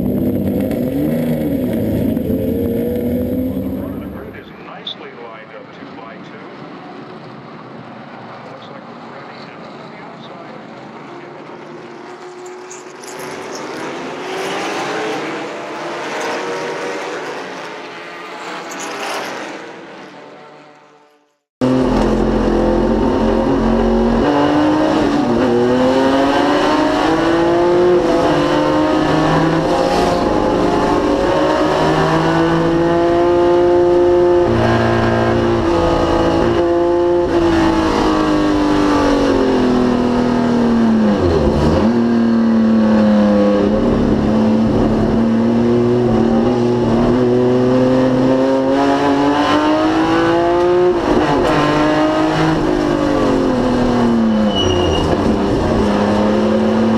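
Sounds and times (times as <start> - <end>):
race car engine running hard: 0.0 - 4.8.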